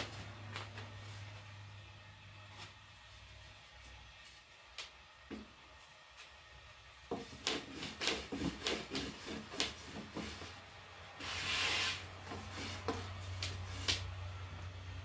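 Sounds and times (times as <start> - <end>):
rolling pin rolling dough: 5.2 - 15.0
dough brushing across board: 7.0 - 14.2.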